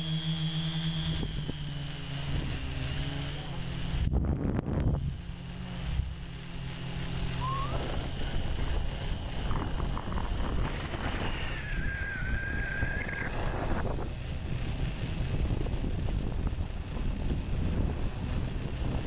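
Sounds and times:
high motor whine: 0:00.0 - 0:19.0
lower motor whine: 0:00.0 - 0:19.0
wind buffeting: 0:07.4 - 0:19.0.

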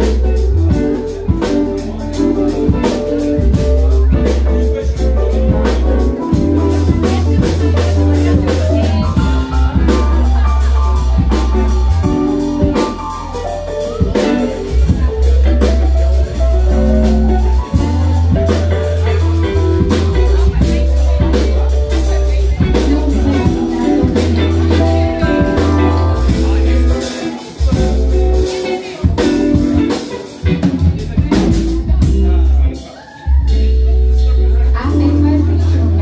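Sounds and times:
live band playing: 0:00.0 - 0:36.0
heavy synth bass notes: 0:02.6 - 0:27.0.

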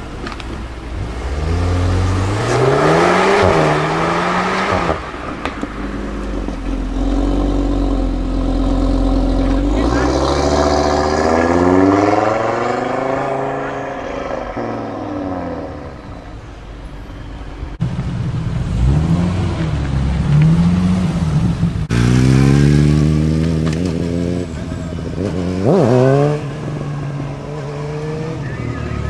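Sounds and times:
car engine accelerating: 0:00.0 - 0:29.0
car engine revving unevenly: 0:00.0 - 0:29.0
motorcycle engine pulling away: 0:18.7 - 0:29.0.

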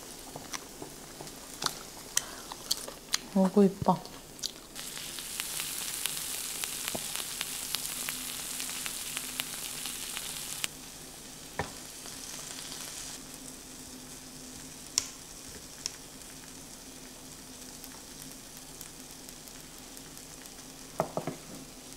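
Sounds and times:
meat sizzling in a grill pan: 0:04.8 - 0:21.9.

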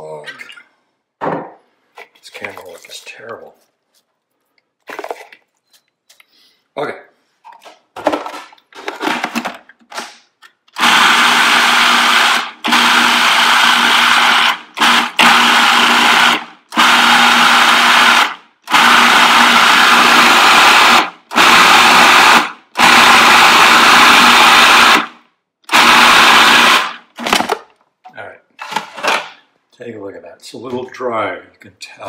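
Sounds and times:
handling noises: 0:01.2 - 0:06.4
food processor motor pulsing: 0:10.7 - 0:25.1, 0:25.7 - 0:27.4.

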